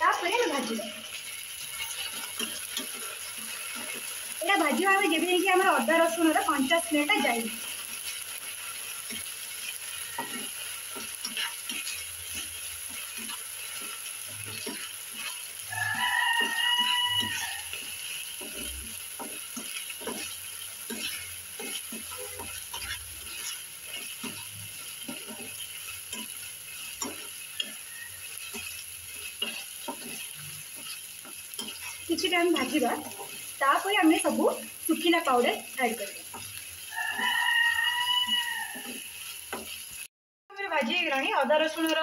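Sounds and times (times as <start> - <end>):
faint sizzle: 0.0 - 42.0
metal spatula scraping and stirring: 0.1 - 40.0.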